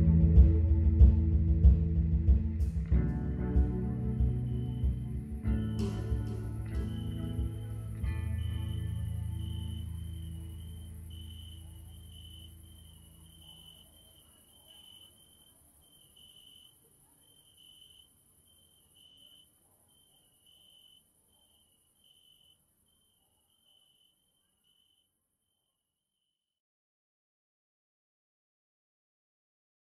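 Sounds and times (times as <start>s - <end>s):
low music: 0.0s - 13.0s
high cricket-like chirp: 3.7s - 26.3s.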